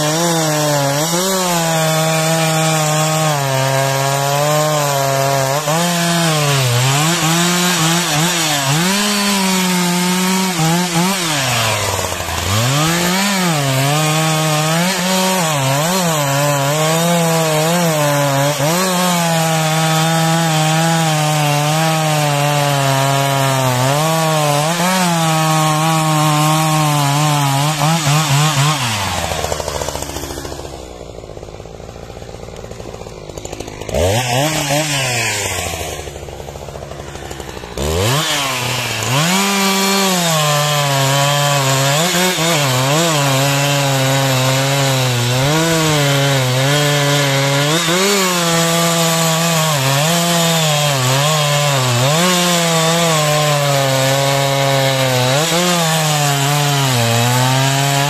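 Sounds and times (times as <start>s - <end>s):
chainsaw cutting log: 0.0s - 58.0s.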